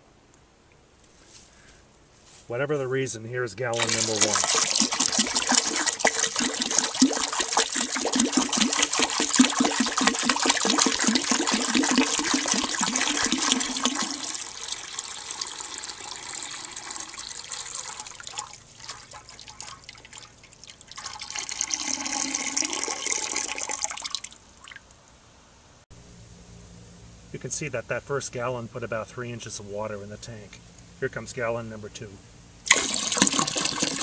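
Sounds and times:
jug glugging: 3.7s - 24.2s, 32.7s - 34.0s
rising gurgle: 3.7s - 24.8s, 32.7s - 34.0s
water pouring and splashing: 3.7s - 24.9s, 32.7s - 34.0s.

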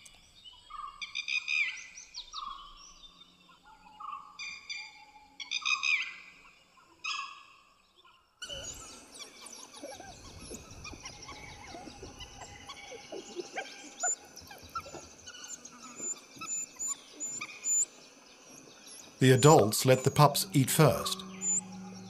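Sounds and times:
wild dog whistling call: 8.4s - 22.0s
wild dogs squeaking and chattering: 8.4s - 22.0s.

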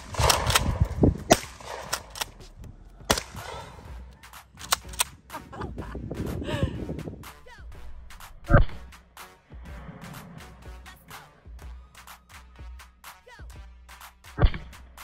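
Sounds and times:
wind rumble on microphone: 0.0s - 1.6s, 5.6s - 7.3s
shotgun shots: 0.0s - 2.4s, 3.1s - 3.9s.

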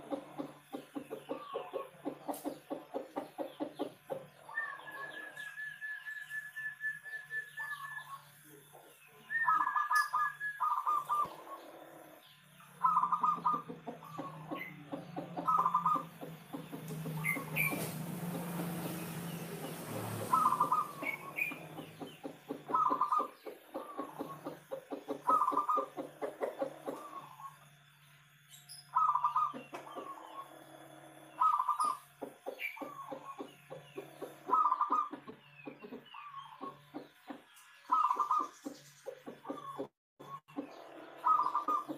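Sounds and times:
dove cooing: 0.0s - 27.9s, 28.9s - 41.9s
steady low hum: 0.0s - 41.9s.

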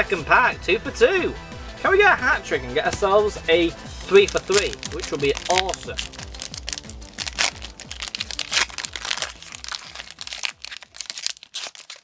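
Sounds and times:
foil wrapper tearing and crinkling: 4.0s - 12.0s.

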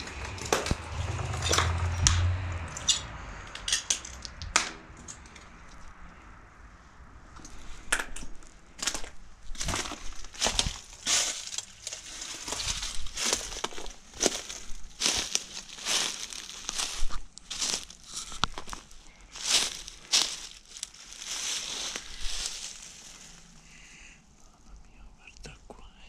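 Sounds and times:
footsteps crunching on dry debris: 0.0s - 2.9s, 7.4s - 23.8s.

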